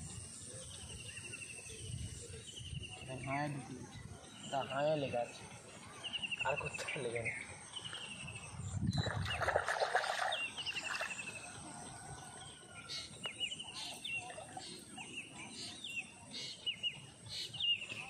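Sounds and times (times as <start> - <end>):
water splashing: 8.9 - 11.5.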